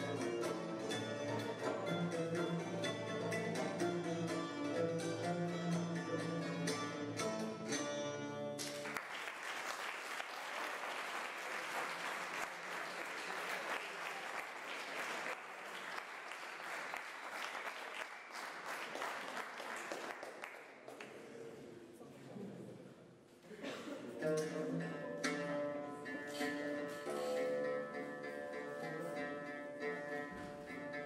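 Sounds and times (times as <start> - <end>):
oud and plucked strings: 0.0 - 8.8, 24.2 - 31.0
audience applause: 8.7 - 20.9.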